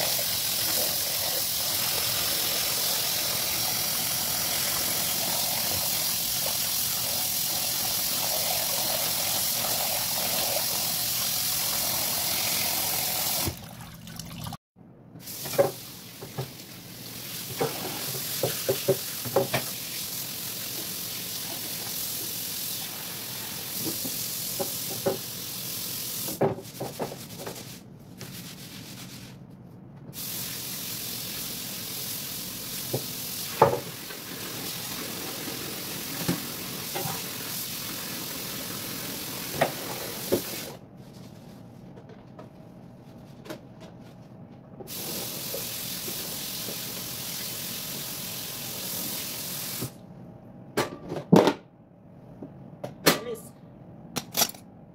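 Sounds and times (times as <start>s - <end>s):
tap water running into sink: 7.6s - 14.6s, 17.4s - 19.8s.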